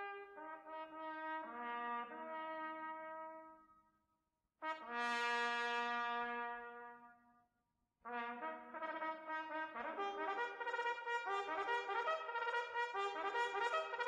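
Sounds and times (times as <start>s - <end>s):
sustained brass chords: 9.6s - 14.0s.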